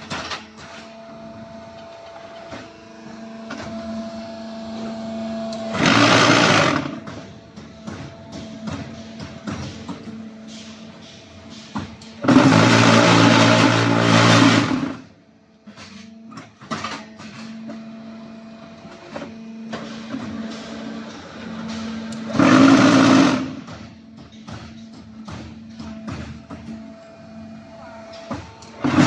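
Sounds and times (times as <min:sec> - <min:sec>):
hydraulic hum: 0:00.0 - 0:16.7
vibrators buzzing loudly: 0:01.2 - 0:08.7, 0:12.2 - 0:15.2, 0:22.2 - 0:24.0, 0:25.9 - 0:29.0
machine clicks and knocks: 0:18.9 - 0:27.0.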